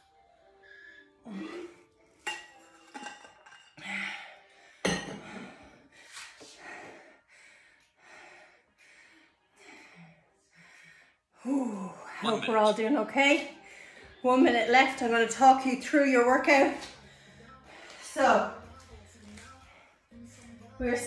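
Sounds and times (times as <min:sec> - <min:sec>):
person breathing hard: 0:03.8 - 0:11.5.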